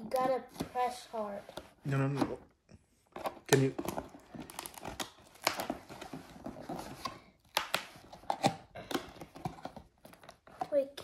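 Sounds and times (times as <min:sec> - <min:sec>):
tool tapping and scraping tape: 0:00.0 - 0:02.4, 0:03.1 - 0:11.0.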